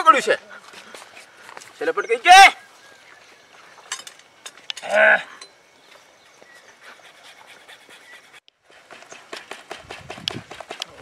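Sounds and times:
person crying out: 0:04.8 - 0:05.4.

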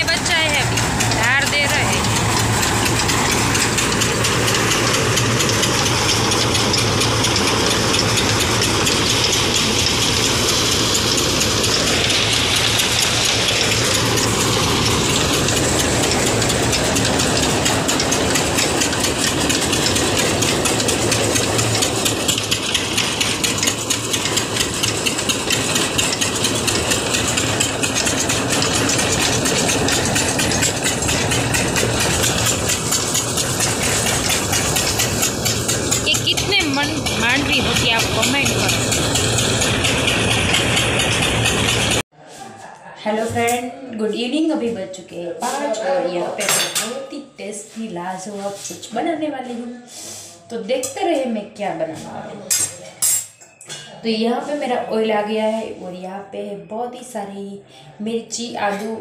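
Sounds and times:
thresher engine running: 0:00.0 - 0:42.1.

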